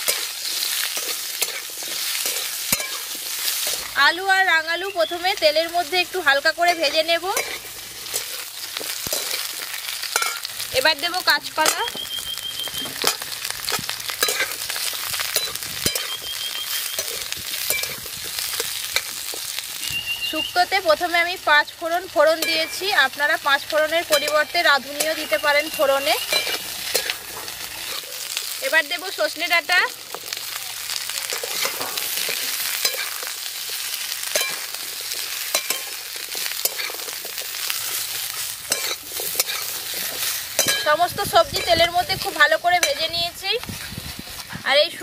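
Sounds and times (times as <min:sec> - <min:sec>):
metal spatula scraping a pan: 0:00.0 - 0:03.9, 0:06.6 - 0:10.6, 0:12.9 - 0:16.2, 0:24.1 - 0:28.4, 0:31.4 - 0:44.4
vegetables sizzling in hot oil: 0:00.0 - 0:45.0.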